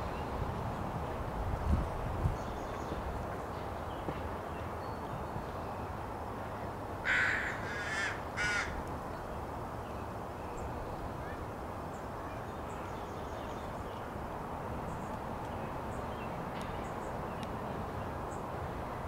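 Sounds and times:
low background noise: 0.0s - 19.0s
crow cawing: 7.0s - 8.8s.

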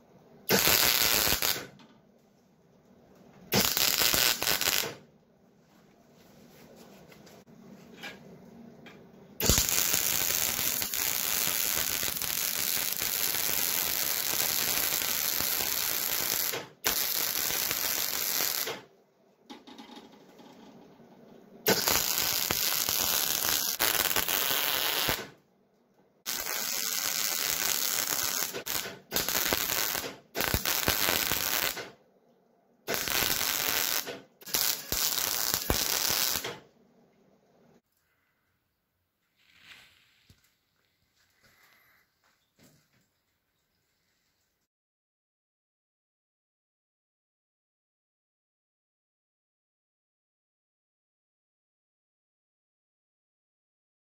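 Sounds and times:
welder arc crackling: 0.5s - 1.8s, 3.5s - 5.0s, 9.4s - 18.9s, 21.7s - 25.4s, 26.3s - 32.0s, 32.9s - 36.6s.

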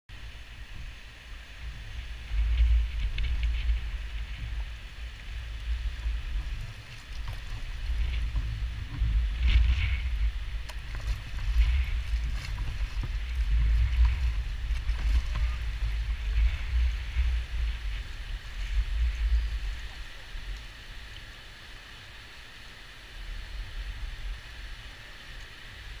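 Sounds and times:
wind buffeting microphone: 0.1s - 21.2s
paddle splashing in water: 2.3s - 21.3s.

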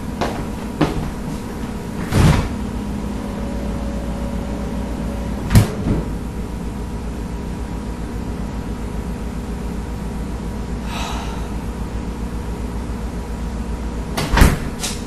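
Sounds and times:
steady low hum: 0.0s - 15.0s
refrigerator door opening: 0.2s - 6.4s, 14.2s - 15.0s.

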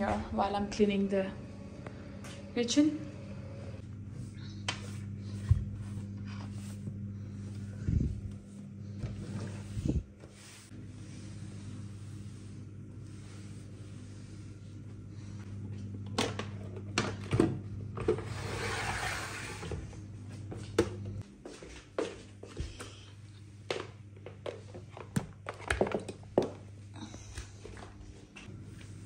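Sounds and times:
low hum: 0.0s - 18.4s
cloth rubbing on worktop: 9.2s - 14.7s.

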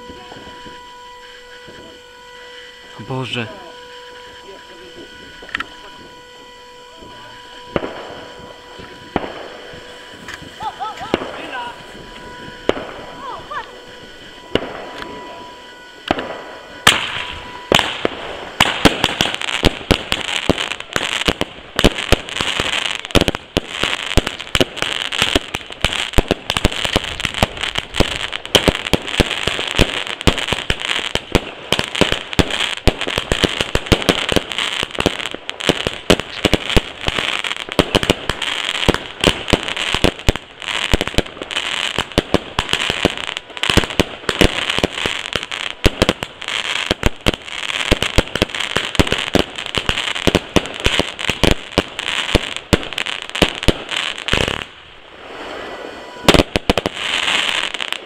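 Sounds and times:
steady high tone: 0.0s - 31.2s, 54.0s - 58.0s
fireworks bangs and crackles: 0.0s - 58.0s.

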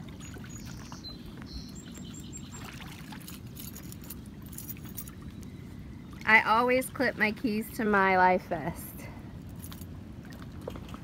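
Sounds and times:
rushing water: 0.0s - 5.3s
wind: 0.0s - 11.0s
faint high bird chirps: 0.2s - 2.8s.

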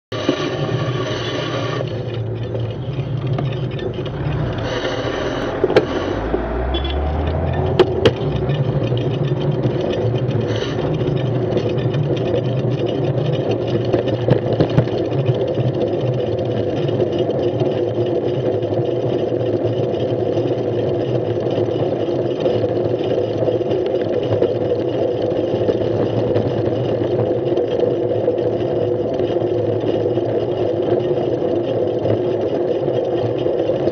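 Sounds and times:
sharp clatters: 0.1s - 33.9s
traffic and road noise rumble: 0.3s - 15.2s
vehicle engines running: 0.6s - 16.1s
engine revving: 2.9s - 11.3s.

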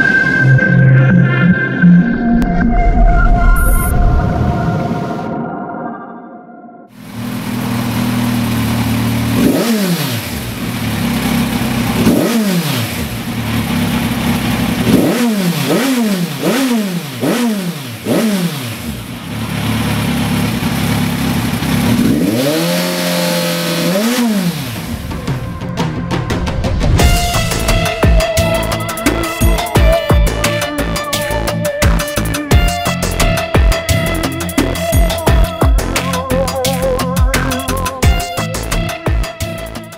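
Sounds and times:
motorcycle engine idling and revving: 6.9s - 39.9s.

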